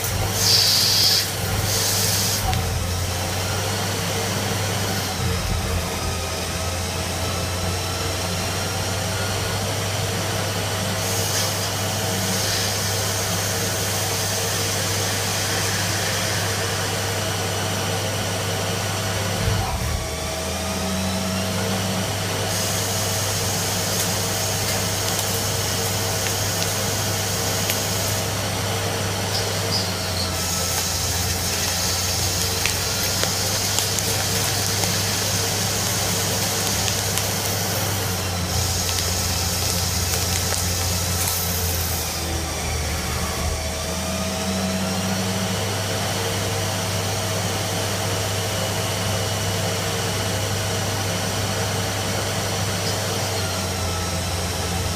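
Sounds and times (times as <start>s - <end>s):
cutting tool hiss: 0.0s - 8.0s, 10.8s - 17.5s, 20.9s - 45.4s
lathe spindle hum: 0.0s - 54.9s.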